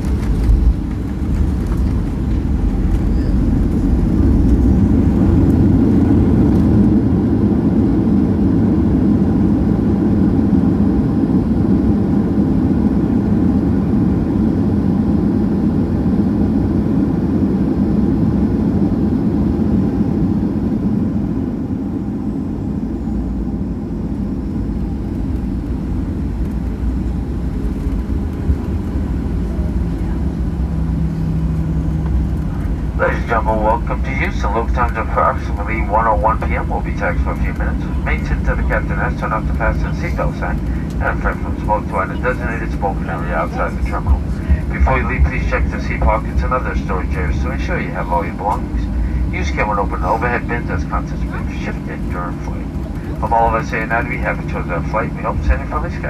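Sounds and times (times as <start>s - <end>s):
aircraft cabin engine and wheel rumble: 0.0s - 56.0s.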